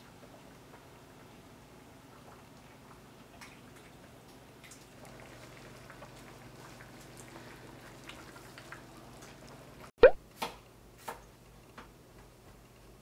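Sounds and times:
soup simmering and bubbling: 0:04.6 - 0:09.9.

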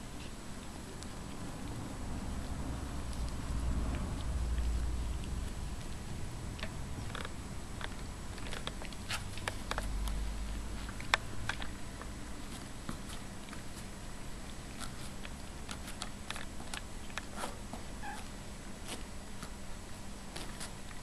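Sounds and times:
light scratches and clicks: 0:06.6 - 0:19.6.

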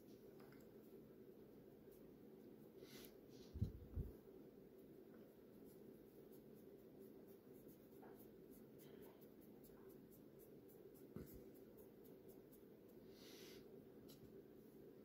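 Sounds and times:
fingertips rubbing cream on skin: 0:05.4 - 0:12.7.

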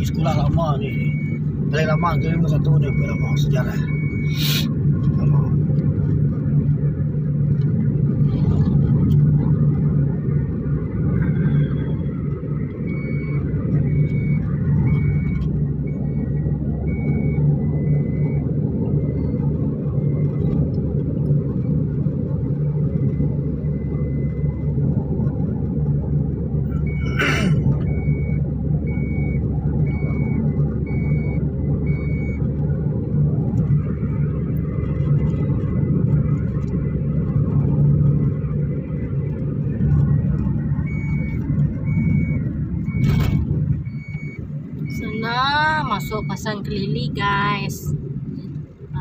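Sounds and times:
car engine hum and road rumble: 0:00.0 - 0:49.0
high electronic warning beep: 0:00.1 - 0:04.7, 0:40.8 - 0:47.8.

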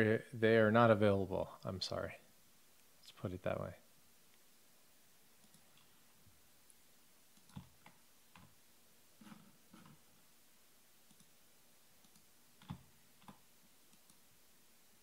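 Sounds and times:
faint clicks and taps: 0:06.6 - 0:08.6, 0:12.0 - 0:14.2.

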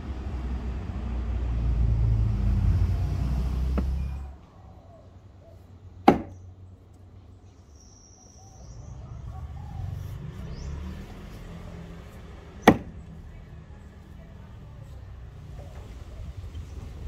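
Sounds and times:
axe chopping wood: 0:06.0 - 0:06.4, 0:12.6 - 0:13.0.

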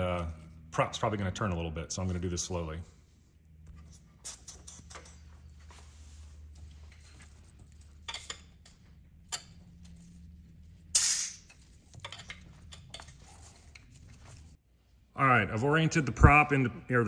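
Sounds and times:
compressed air hiss: 0:11.0 - 0:11.5.

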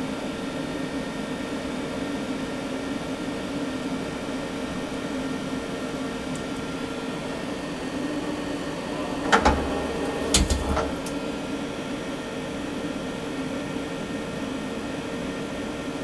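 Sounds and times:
lathe humming: 0:06.6 - 0:11.9.

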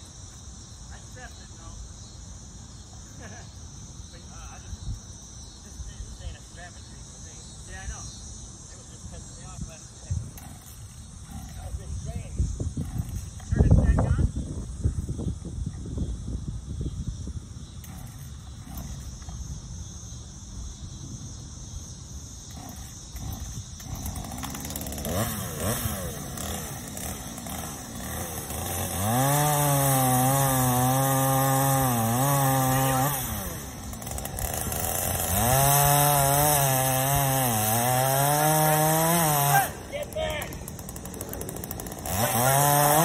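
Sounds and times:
chainsaw engine revving: 0:10.1 - 0:13.5, 0:17.8 - 0:19.5, 0:22.4 - 0:43.0.

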